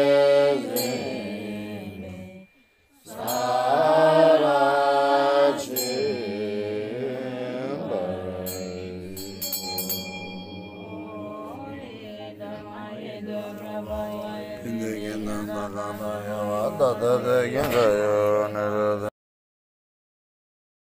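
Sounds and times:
chanted mantra melody: 0.0s - 19.1s.

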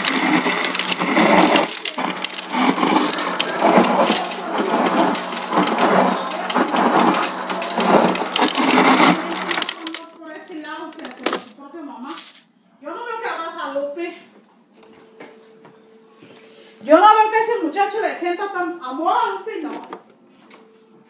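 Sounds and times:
ice dispenser motor hum: 0.0s - 12.4s
crushed ice pouring into cup: 0.0s - 12.5s.

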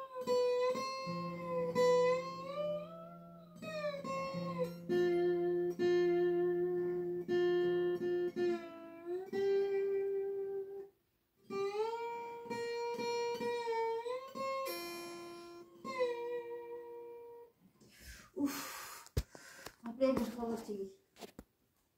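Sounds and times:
slide guitar melody: 0.0s - 17.6s.

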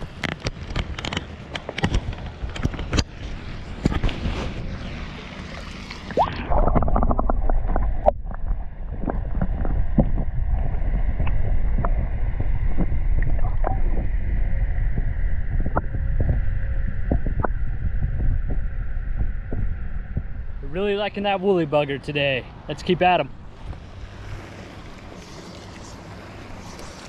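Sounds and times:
low underwater rumble: 2.4s - 21.3s
muffled underwater sound: 3.6s - 21.7s
bubbling pops: 6.1s - 14.1s.

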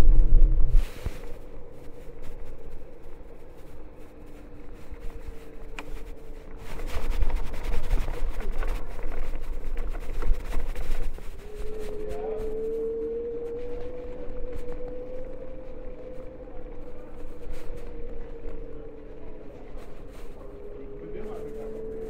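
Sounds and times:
wheel and wind rumble: 0.0s - 22.0s
electric scooter motor whine: 0.8s - 22.0s.

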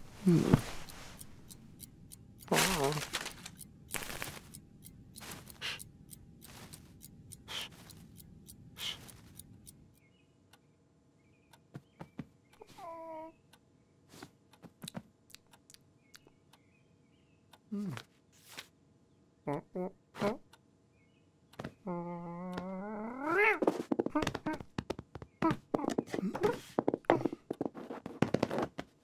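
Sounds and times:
man breathing heavily: 0.0s - 1.5s, 5.4s - 5.9s, 7.4s - 7.9s, 8.8s - 9.2s
rustling clicks: 0.0s - 9.8s
faint chirps: 4.4s - 14.0s.

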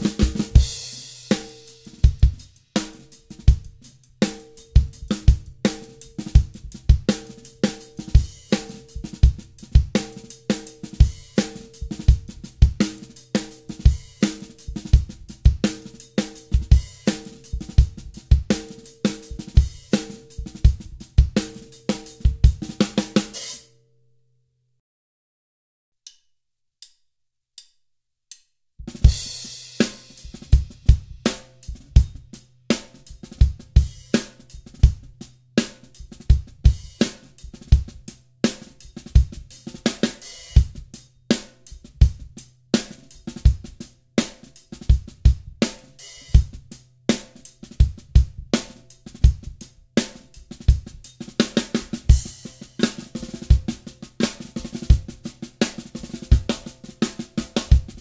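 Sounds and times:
drum kit groove: 0.0s - 23.7s, 28.8s - 58.0s
drumstick clicks counting in: 26.1s - 27.0s.

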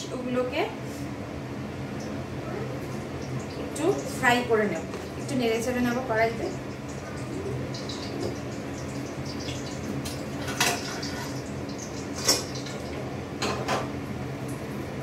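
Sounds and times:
steady low hum: 0.0s - 15.0s
steel utensils clinking on pots: 10.4s - 11.5s.

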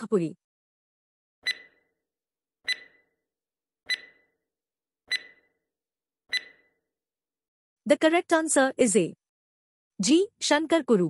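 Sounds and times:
electronic timer ticks: 1.4s - 1.8s, 2.7s - 3.1s, 3.9s - 4.3s, 5.1s - 5.5s, 6.3s - 6.7s.

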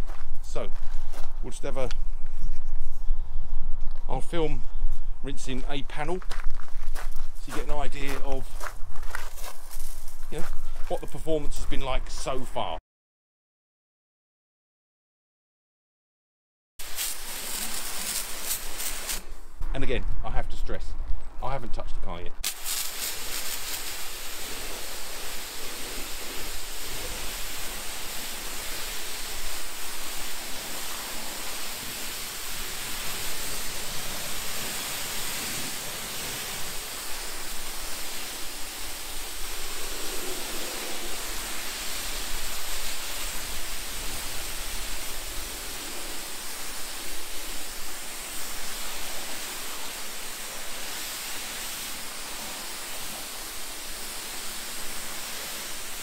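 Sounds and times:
pressure washer spraying water: 16.8s - 19.4s, 22.4s - 56.0s.

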